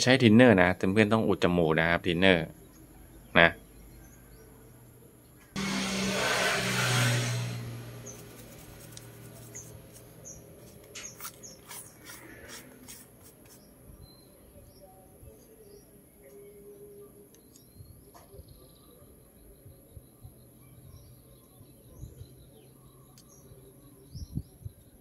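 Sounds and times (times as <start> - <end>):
toothbrush scrubbing circuit board: 8.0 - 13.6
small birds chirping: 8.0 - 25.0.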